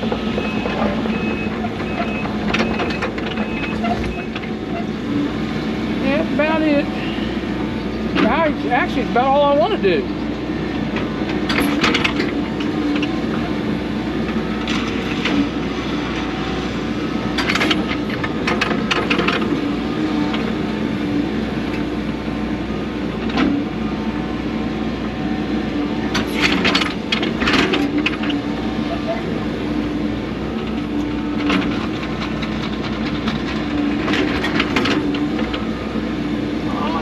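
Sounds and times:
excavator engine and hydraulics: 0.0 - 37.0.

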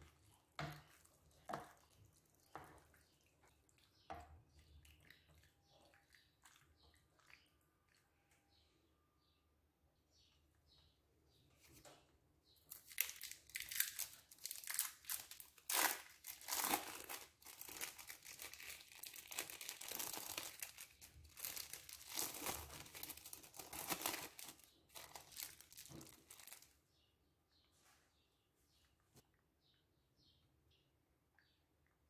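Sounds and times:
plastic wrapping crinkling: 12.7 - 26.8.

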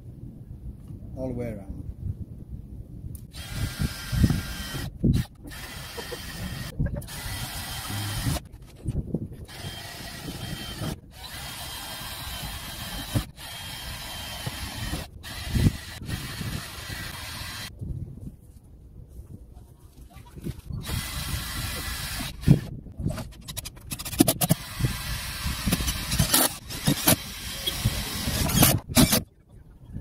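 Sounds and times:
power drill bursts: 3.3 - 8.4, 9.5 - 17.7, 20.8 - 22.7, 24.4 - 29.2.

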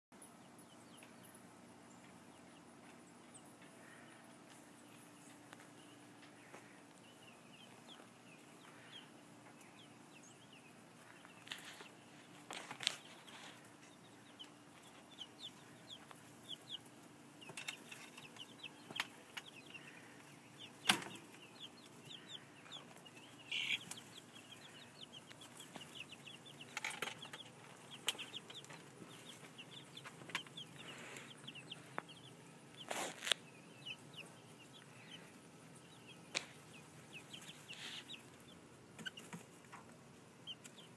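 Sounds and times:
chicks peeping: 0.3 - 40.9
rustles: 10.9 - 14.0, 22.4 - 33.5.

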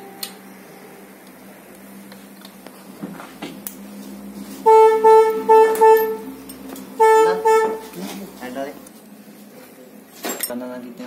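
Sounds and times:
vehicle horn toots: 4.5 - 8.2.

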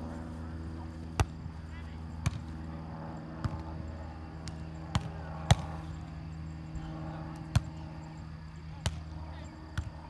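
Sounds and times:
low steady hum: 0.0 - 10.0
volleyball hits: 4.4 - 6.0.

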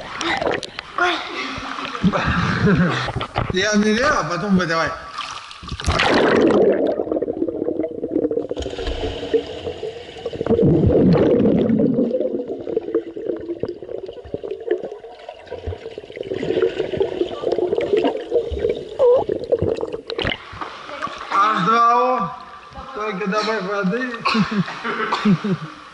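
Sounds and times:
muffled underwater pool water churning: 0.0 - 4.0, 5.0 - 23.2
swimmers kicking underwater: 5.2 - 21.3.

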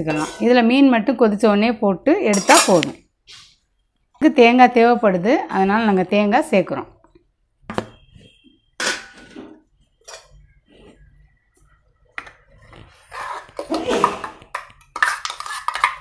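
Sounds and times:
spoon clinking and scraping metal: 2.3 - 2.9, 13.2 - 16.0.

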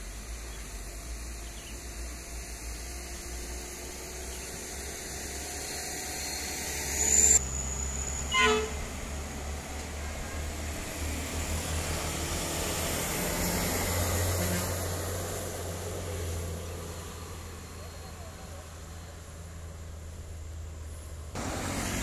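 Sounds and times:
truck diesel engine: 0.0 - 22.0
truck horn toot: 8.3 - 9.0, 14.3 - 14.9.

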